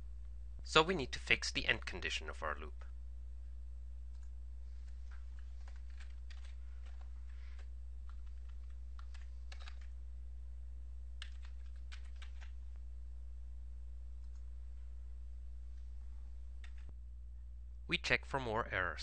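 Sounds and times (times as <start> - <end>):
low electrical hum: 0.0 - 19.0
computer keyboard clicking: 5.1 - 9.9, 11.2 - 12.6, 16.6 - 16.8.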